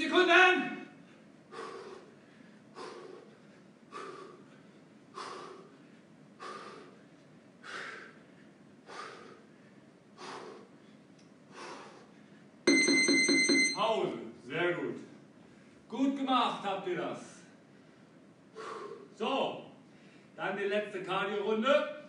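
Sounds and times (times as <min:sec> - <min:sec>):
man breathing hard: 0:01.0 - 0:12.6, 0:17.6 - 0:19.2, 0:19.8 - 0:20.4.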